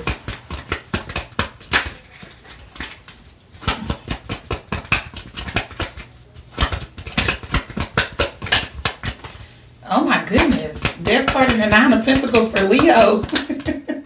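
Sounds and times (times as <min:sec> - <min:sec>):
cards being shuffled: 0:00.1 - 0:09.7.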